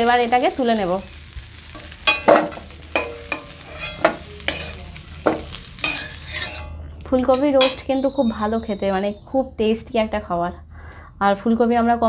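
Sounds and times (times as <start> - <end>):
light sizzle of oil: 0.0 - 6.7
metal spatula scraping a pan: 1.0 - 8.2.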